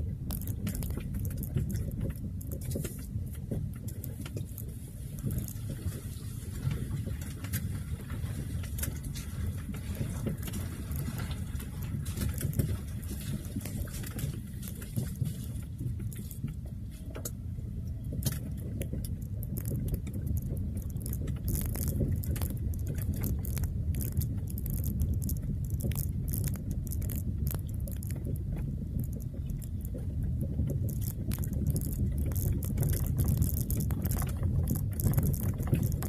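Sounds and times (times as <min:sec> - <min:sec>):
clicks and rattles: 0:18.1 - 0:36.0.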